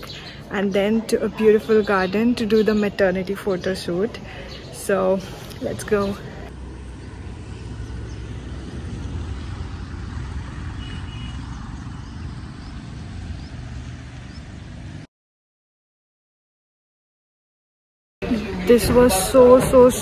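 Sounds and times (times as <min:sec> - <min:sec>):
distant road traffic: 0:00.0 - 0:15.1, 0:18.2 - 0:20.0
wind: 0:00.0 - 0:15.1, 0:18.2 - 0:20.0.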